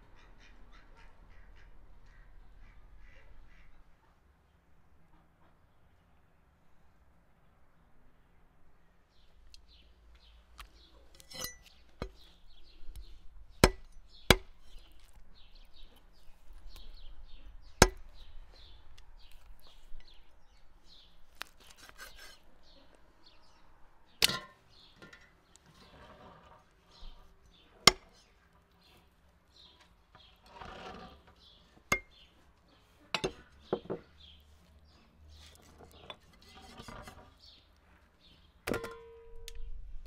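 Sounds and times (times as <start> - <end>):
birds chirping faintly: 0.0 - 40.0
cleaver chopping on wooden block: 13.6 - 15.1, 17.8 - 18.1, 27.9 - 28.1.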